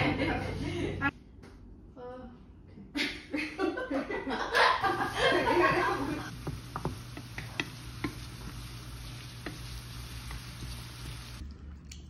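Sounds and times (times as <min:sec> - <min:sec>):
onions sizzling in a pan: 0:04.8 - 0:11.4.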